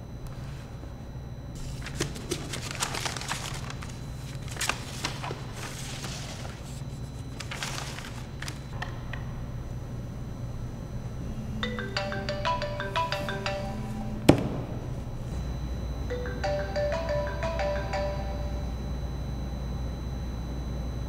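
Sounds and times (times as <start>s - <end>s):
low steady hum: 0.0s - 21.0s
papers rustling: 1.6s - 8.8s.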